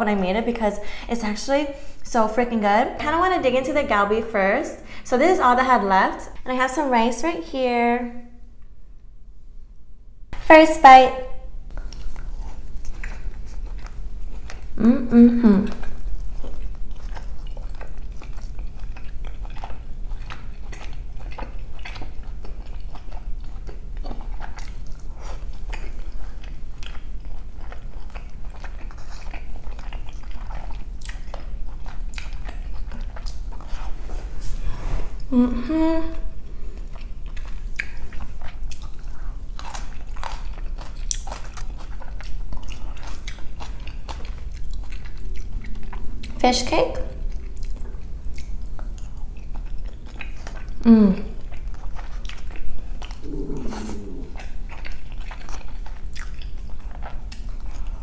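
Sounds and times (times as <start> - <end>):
close chewing: 11.7 - 34.6, 36.4 - 58.0
person humming: 14.8 - 15.8, 35.3 - 36.4, 50.8 - 51.3, 53.2 - 54.4
wet mouth clicks: 37.3 - 39.0, 53.0 - 55.4.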